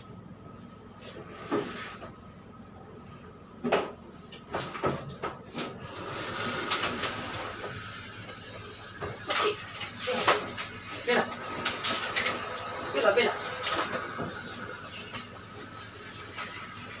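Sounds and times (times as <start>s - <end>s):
shower head spraying water: 7.0s - 17.0s.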